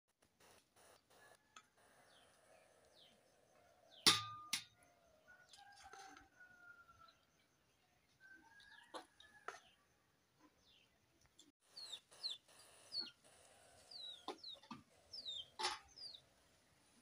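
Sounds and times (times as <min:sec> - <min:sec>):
chickens chirping: 0:11.7 - 0:16.3.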